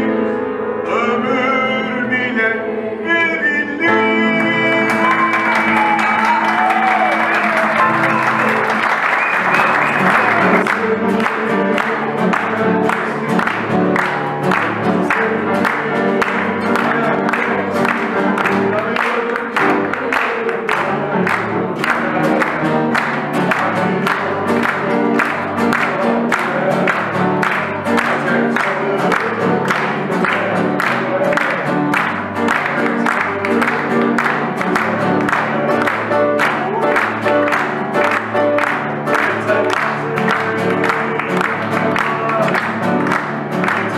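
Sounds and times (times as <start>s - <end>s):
acoustic guitar: 0.0s - 43.9s
upright piano: 0.0s - 43.9s
audience clapping along: 4.4s - 43.9s.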